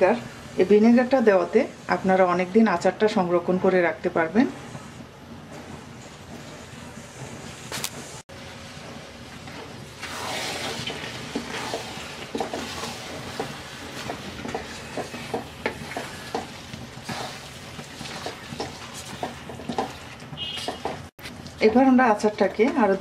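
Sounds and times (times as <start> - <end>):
spatula scraping a pan: 9.6 - 21.1
pickle sizzling in a pan: 10.0 - 20.8.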